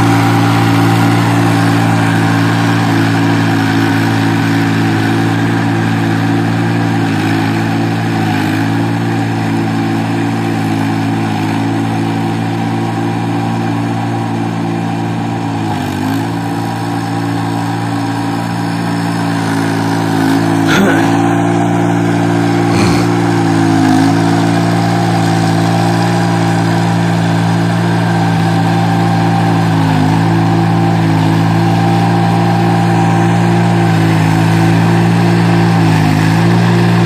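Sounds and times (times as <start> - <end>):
tractor diesel engine running: 16.9 - 37.0.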